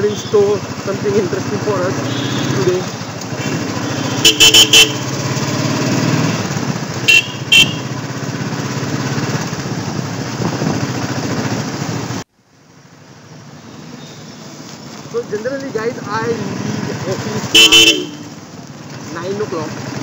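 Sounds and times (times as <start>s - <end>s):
motorcycle engine running: 0.0s - 13.6s, 14.6s - 20.0s
road and wind noise: 0.0s - 20.0s
horn honks: 1.9s - 5.5s, 7.0s - 8.0s, 17.4s - 18.4s.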